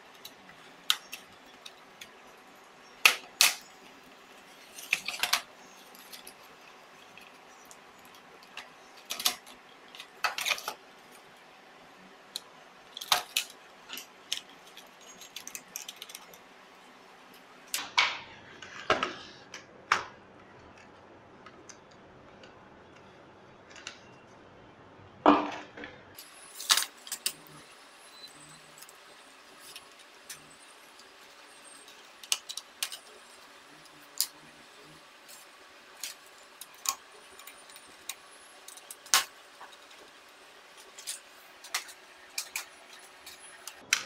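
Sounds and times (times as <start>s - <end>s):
plastic and metal parts clattering: 0.1s - 11.4s, 12.3s - 16.5s, 25.5s - 44.0s.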